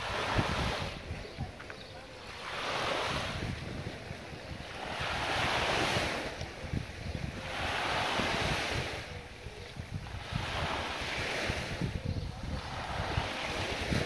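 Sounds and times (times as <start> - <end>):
small waves breaking on sand: 0.0 - 14.0
wind buffeting microphone: 0.0 - 14.0.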